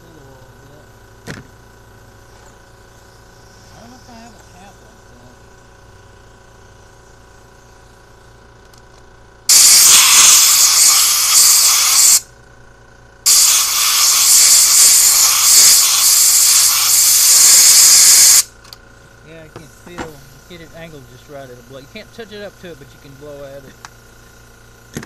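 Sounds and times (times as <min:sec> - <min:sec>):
compressed air hissing from blow gun: 0:09.5 - 0:12.2, 0:13.2 - 0:18.5, 0:19.3 - 0:24.4.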